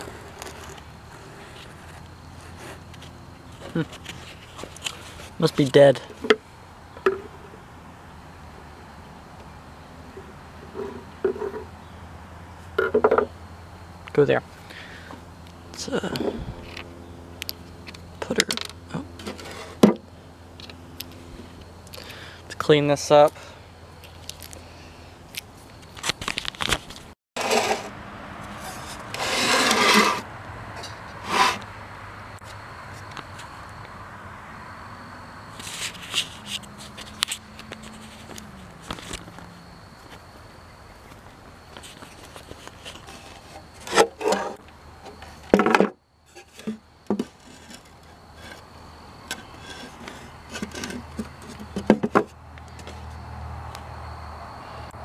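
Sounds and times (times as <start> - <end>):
scraping and rubbing on plastic: 0.0 - 5.7, 10.2 - 11.7, 19.2 - 19.9, 25.9 - 31.7, 35.5 - 39.4, 41.8 - 48.7, 49.3 - 53.0.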